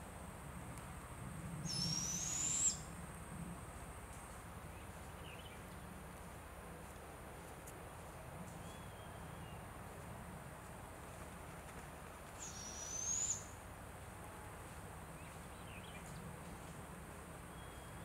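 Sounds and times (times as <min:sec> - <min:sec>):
young owl screechy call: 0:01.6 - 0:02.9, 0:12.4 - 0:13.5.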